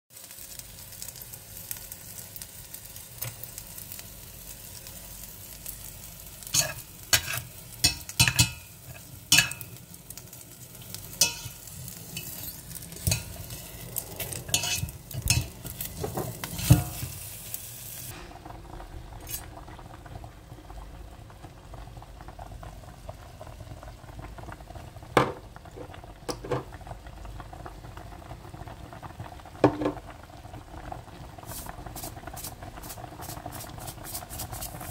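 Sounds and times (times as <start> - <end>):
chicken sizzling in hot oil: 0.1 - 20.1, 20.9 - 34.9
knocks and clicks against pot: 26.3 - 26.7, 29.6 - 30.0.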